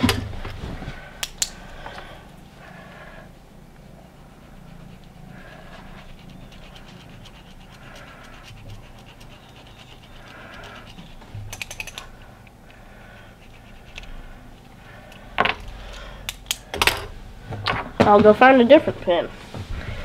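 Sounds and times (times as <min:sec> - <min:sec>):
marker scratching on wood: 0:04.0 - 0:11.6.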